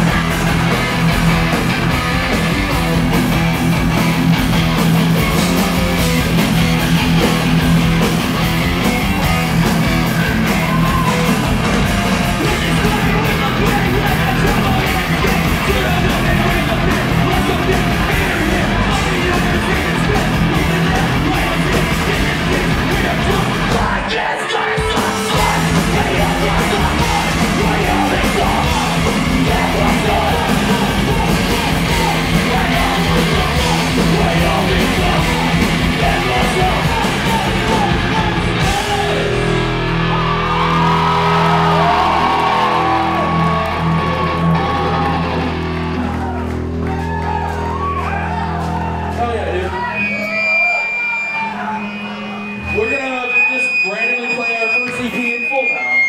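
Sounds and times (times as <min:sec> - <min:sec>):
live rock band playing: 0:00.0 - 0:56.0
shouted vocals: 0:10.0 - 0:56.0.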